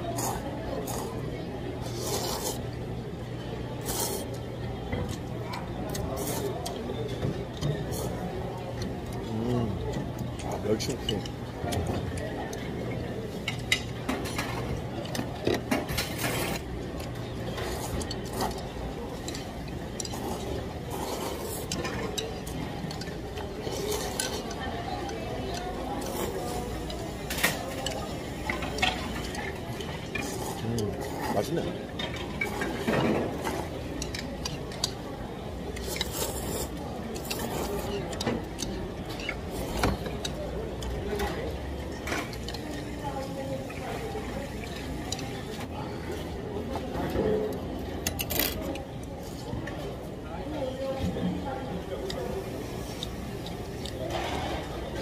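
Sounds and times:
chatter of voices: 0:00.0 - 0:55.0.

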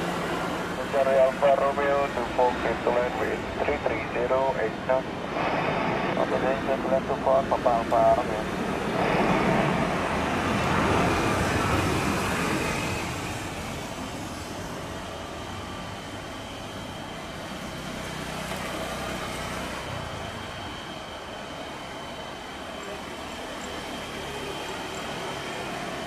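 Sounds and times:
jet engines roaring: 0:00.0 - 0:26.0
thin high whine: 0:00.8 - 0:11.8.

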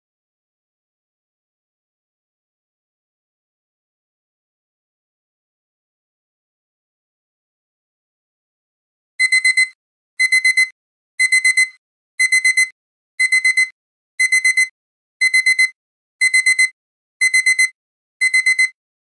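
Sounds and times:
alarm clock beeping: 0:09.2 - 0:18.8.

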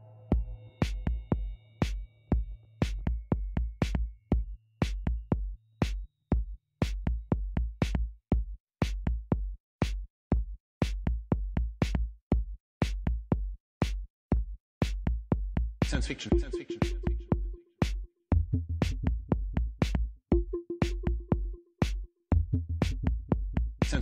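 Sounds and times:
drum machine beat: 0:00.3 - 0:24.0.

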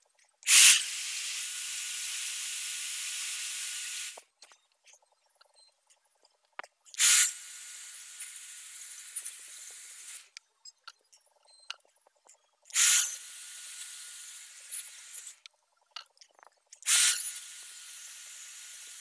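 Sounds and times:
aerosol spray can hissing: 0:00.5 - 0:04.2, 0:07.0 - 0:07.4, 0:12.8 - 0:13.2, 0:16.9 - 0:19.0.

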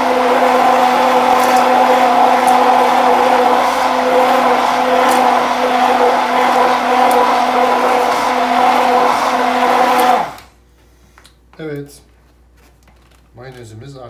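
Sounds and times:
immersion blender motor running: 0:00.0 - 0:10.5.

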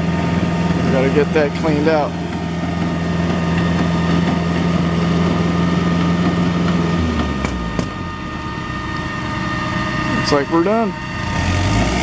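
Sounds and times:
pump truck engine running: 0:00.0 - 0:12.0
sharp knocks: 0:06.1 - 0:08.0.

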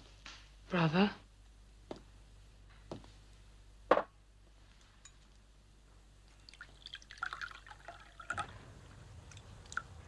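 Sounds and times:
liquid pouring into a glass: 0:06.3 - 0:10.0.

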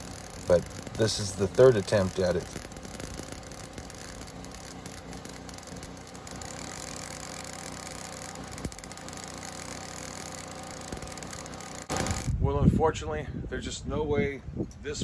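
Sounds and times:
generator engine running: 0:00.0 - 0:12.4
welding arc crackling: 0:00.0 - 0:12.4.

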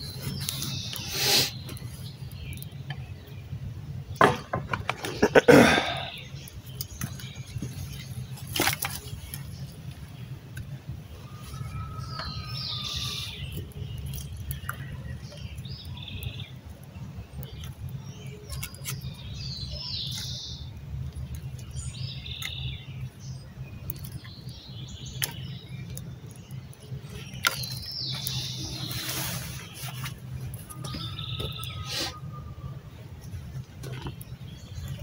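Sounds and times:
birds calling: 0:00.0 - 0:35.0
dry sticks snapping in fire: 0:00.4 - 0:03.4, 0:06.1 - 0:09.6, 0:13.1 - 0:28.8.

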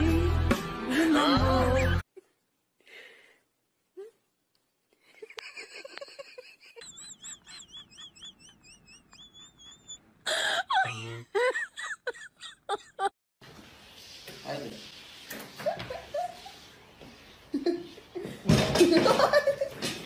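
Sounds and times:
person laughing in wheezy giggles: 0:05.2 - 0:13.1, 0:15.6 - 0:16.6.

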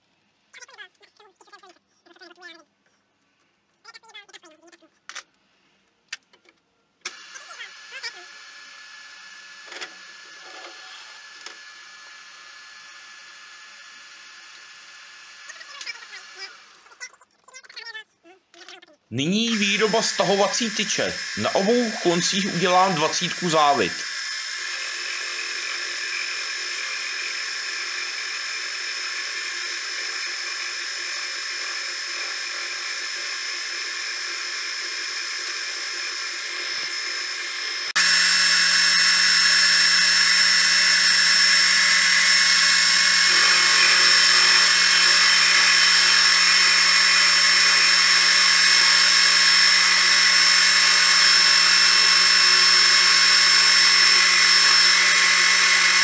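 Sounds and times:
metal lathe whining: 0:19.2 - 0:56.0.

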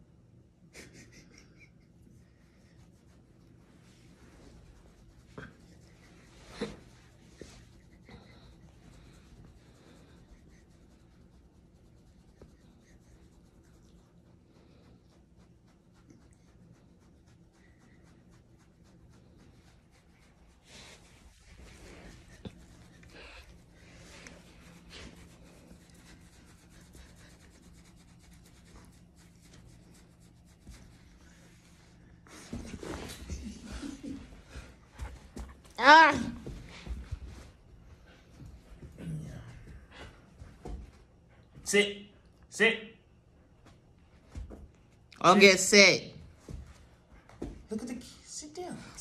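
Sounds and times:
faint low hum: 0:00.0 - 0:45.3
hand rubbing dog fur: 0:00.9 - 0:34.3.

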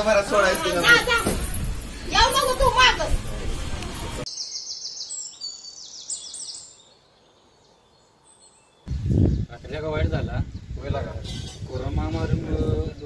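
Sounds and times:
bird chirping: 0:04.0 - 0:09.8.

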